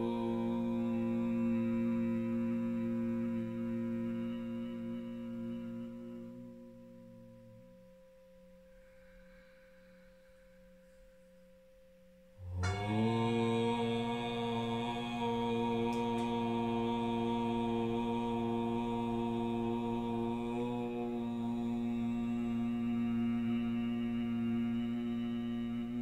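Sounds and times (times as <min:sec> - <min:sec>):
man chanting om: 0:00.0 - 0:08.2, 0:12.4 - 0:26.0
singing bowl ringing: 0:06.7 - 0:17.4.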